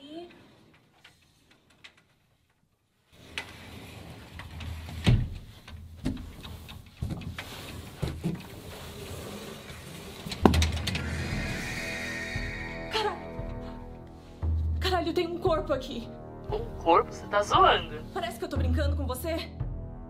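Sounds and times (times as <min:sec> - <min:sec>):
low rumble: 0:10.5 - 0:15.0.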